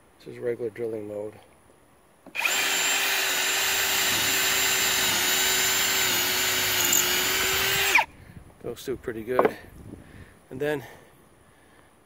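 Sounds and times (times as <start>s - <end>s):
cordless drill boring through wood: 2.3s - 8.1s.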